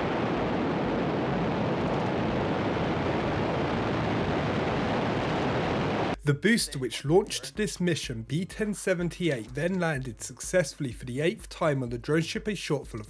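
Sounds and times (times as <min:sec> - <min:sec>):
rocket engines roaring: 0:00.0 - 0:06.2.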